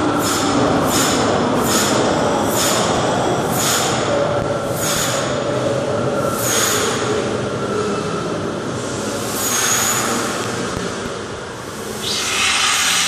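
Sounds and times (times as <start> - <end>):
gas venting rush: 8.6 - 13.0
hissing surges: 11.9 - 13.0.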